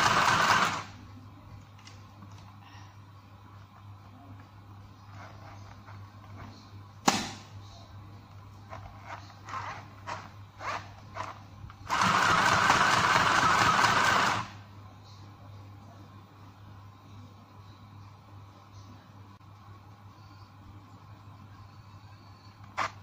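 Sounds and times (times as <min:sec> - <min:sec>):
sewing machine stitching: 0:00.0 - 0:00.9, 0:11.9 - 0:14.6.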